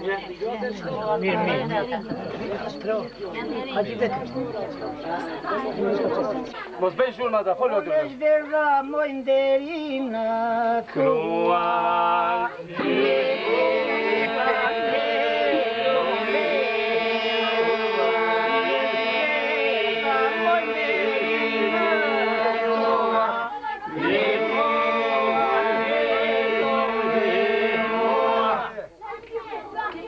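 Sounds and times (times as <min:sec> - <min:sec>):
men singing polyphonic folk song: 0:07.8 - 0:28.9.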